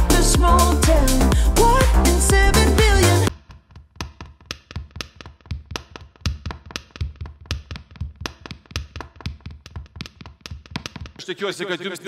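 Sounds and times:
rhythmic clicks with low thuds: 0.0 - 11.2.

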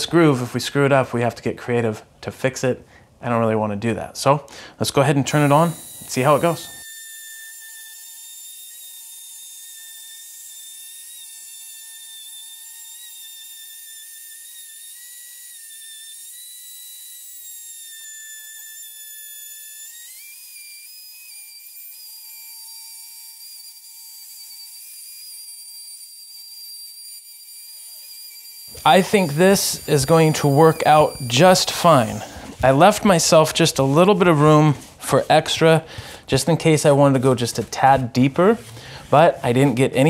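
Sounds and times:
electric router whining: 5.3 - 11.7, 27.4 - 33.0.

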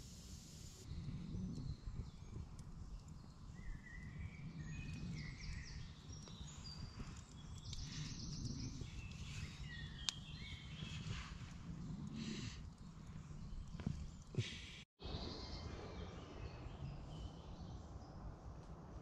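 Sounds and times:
birds singing: 0.9 - 11.3
wood fire crack: 1.0 - 14.6.

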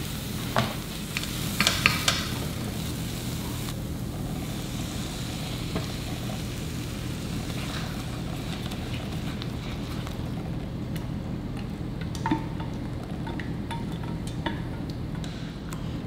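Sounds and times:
vegetables sizzling in skillet: 0.0 - 10.1.

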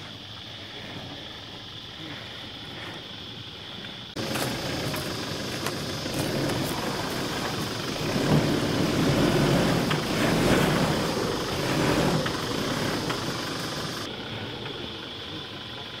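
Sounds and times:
truck engine under load: 4.2 - 16.0.

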